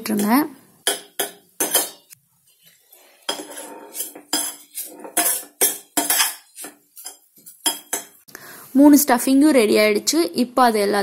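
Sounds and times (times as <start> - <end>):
spoon scraping a steel pan: 0.1 - 8.2.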